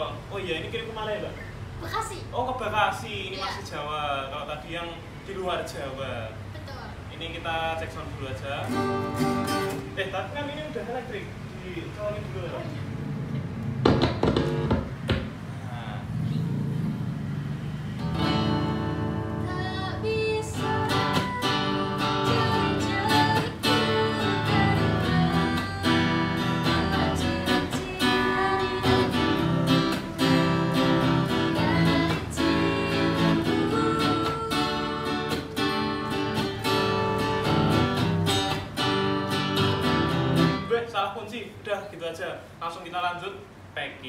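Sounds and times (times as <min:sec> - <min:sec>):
guitar strummed chords: 0:08.7 - 0:09.9, 0:18.0 - 0:40.7
woman singing: 0:19.2 - 0:36.6.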